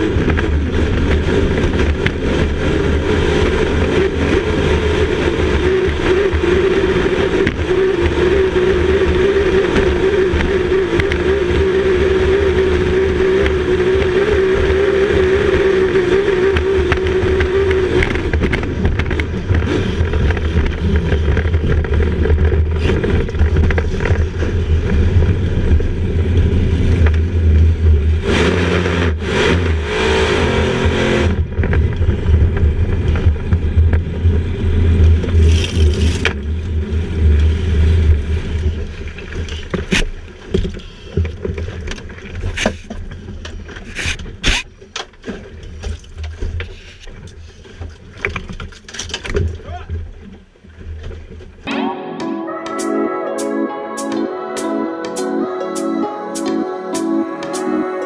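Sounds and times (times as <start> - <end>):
speedboat engine running loud: 0.0 - 30.9.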